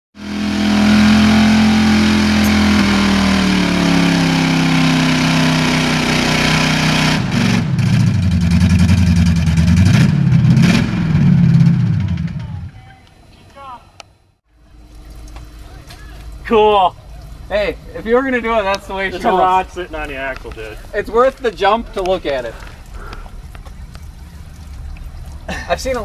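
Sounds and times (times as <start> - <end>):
truck engine running flat out: 0.2 - 12.8.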